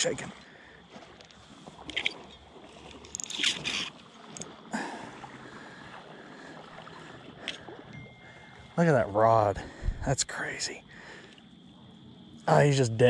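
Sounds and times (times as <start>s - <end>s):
river water flowing: 0.0s - 13.0s.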